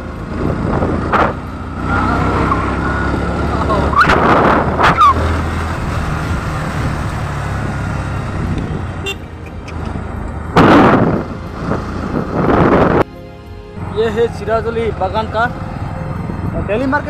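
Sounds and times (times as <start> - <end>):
motorcycle engine running: 0.0 - 13.0.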